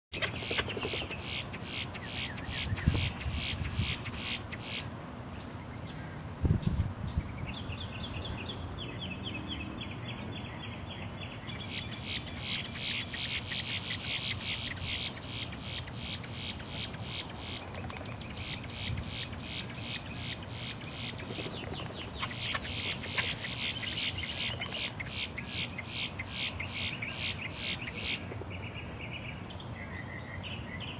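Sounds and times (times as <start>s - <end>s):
grackles calling harshly: 0.2s - 4.9s, 11.7s - 28.3s.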